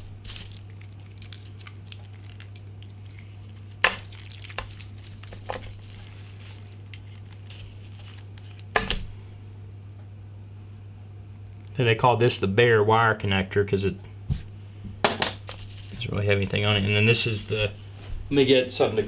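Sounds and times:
plastic packaging crinkling: 0.0 - 9.2, 15.4 - 17.8
steady low hum: 0.0 - 19.0.

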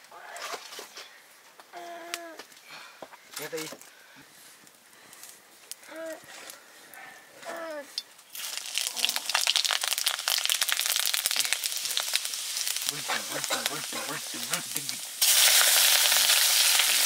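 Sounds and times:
spices sizzling in hot oil: 8.3 - 17.0.

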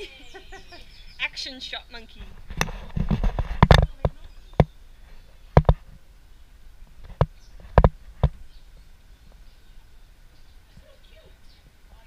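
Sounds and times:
sharp close knocks: 5.5 - 5.9, 7.0 - 8.4.

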